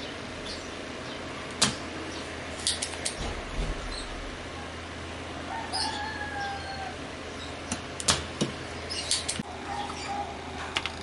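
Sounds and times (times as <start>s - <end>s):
rooster-like call: 5.3s - 7.2s.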